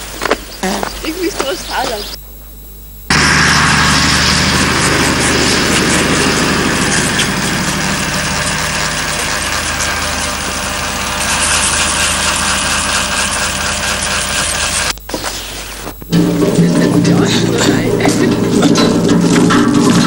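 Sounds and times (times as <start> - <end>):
low hum: 3.0 - 15.1, 16.0 - 20.0
electric shaver buzzing: 3.2 - 14.9.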